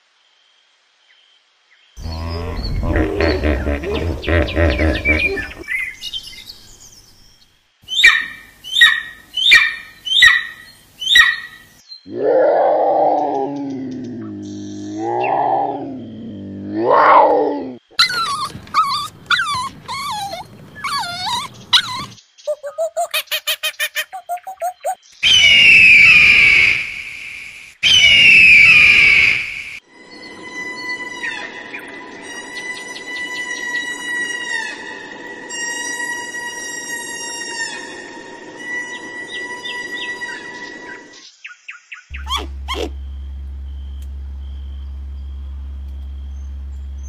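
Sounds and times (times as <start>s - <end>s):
hawk screeching calls: 18.0s - 25.6s, 42.1s - 47.0s
bird of prey screaming: 18.0s - 26.9s, 27.8s - 29.6s
faint whistling tones: 42.1s - 47.0s
lynx long low call: 42.1s - 47.0s.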